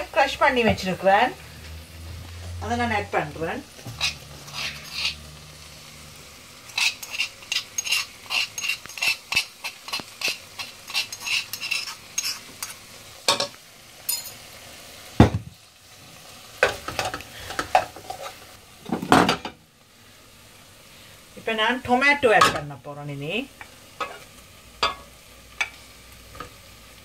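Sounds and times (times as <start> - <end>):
faint sizzle: 0.0 - 27.0
spoon scraping a pot: 3.8 - 5.3, 6.6 - 13.5, 16.6 - 18.4, 24.0 - 25.0.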